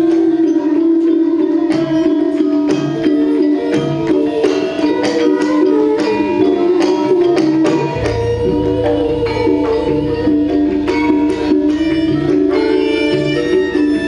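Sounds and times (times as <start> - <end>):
gamelan ensemble music: 0.0 - 14.0
hand drum strokes: 0.0 - 14.0
metallophone tones: 0.0 - 14.0
low bass: 8.0 - 12.4.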